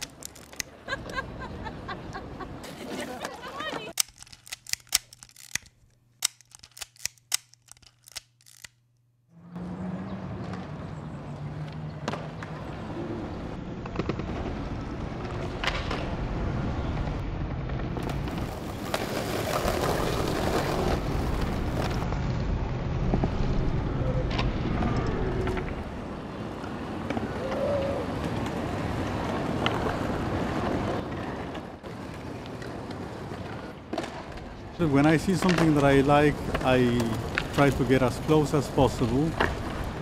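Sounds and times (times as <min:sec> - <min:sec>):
sharp clicks: 0:03.9 - 0:08.8.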